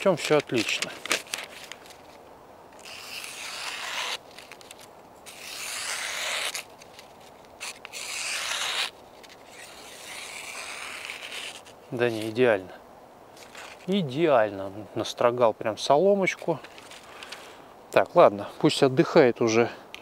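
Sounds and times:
knife slicing through paper: 0:02.8 - 0:12.3.

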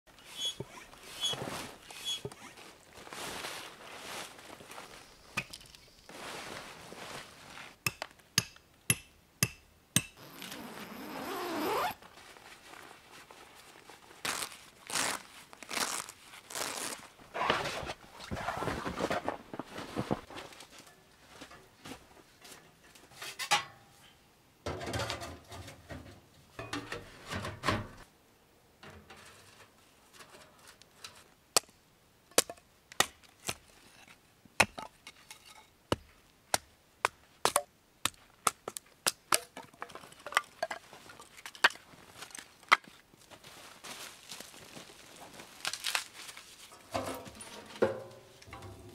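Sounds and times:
tent fabric rustling and scraping: 0:00.2 - 0:07.8, 0:10.2 - 0:23.4, 0:43.2 - 0:48.9.

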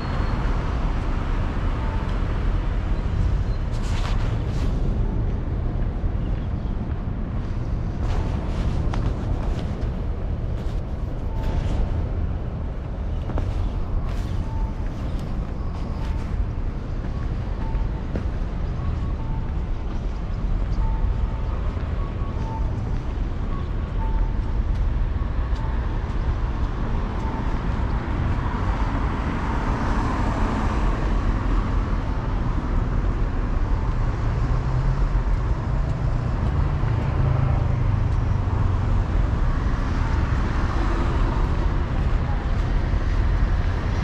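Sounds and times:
road traffic rumble: 0:00.0 - 0:44.0.

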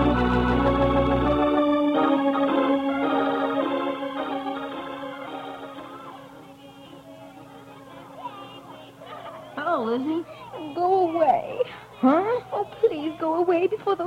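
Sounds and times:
organ chords: 0:00.0 - 0:11.1.

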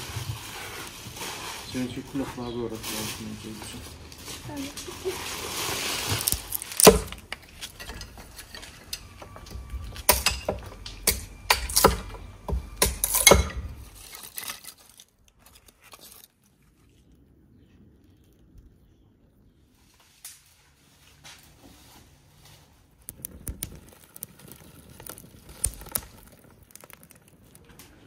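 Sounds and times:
hard items clinking and knocking: 0:06.2 - 0:14.8.

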